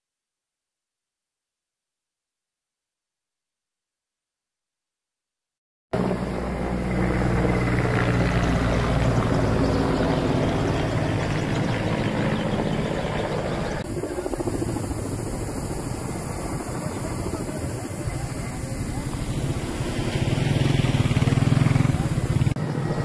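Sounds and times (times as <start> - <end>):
helicopter engine and rotors: 6.0 - 23.0
rough fluttering engine noise: 6.0 - 23.0.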